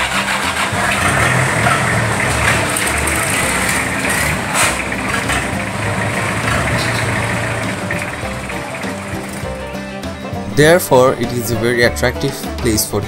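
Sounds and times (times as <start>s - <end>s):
sharp clatter: 0.0s - 9.6s
motorboat engine humming: 0.0s - 10.6s.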